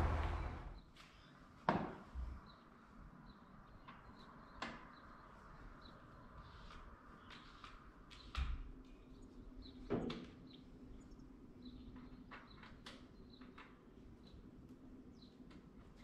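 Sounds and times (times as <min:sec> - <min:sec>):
low steady hum: 0:00.0 - 0:00.8.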